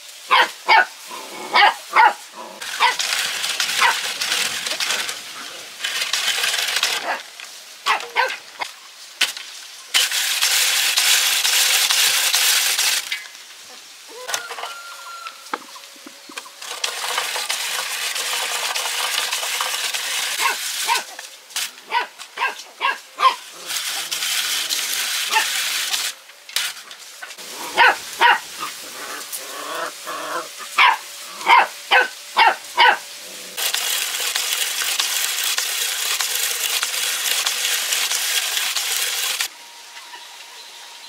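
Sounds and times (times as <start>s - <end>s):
dog barking: 0.3s - 0.9s, 1.5s - 2.2s, 2.8s - 3.0s, 3.8s - 4.0s, 7.9s - 8.4s, 20.4s - 21.1s, 21.9s - 23.4s, 27.6s - 28.4s, 30.8s - 33.0s.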